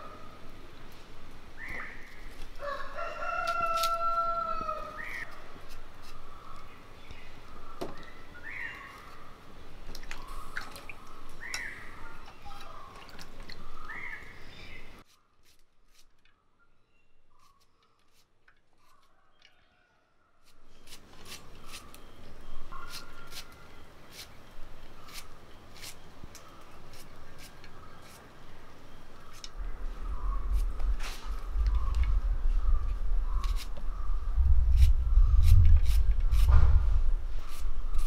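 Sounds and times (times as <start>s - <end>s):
rooster crowing: 2.6s - 5.1s.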